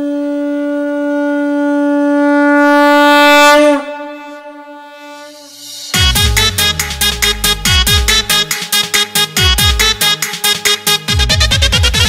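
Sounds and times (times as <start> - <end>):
conch shell blown: 0.0 - 8.8.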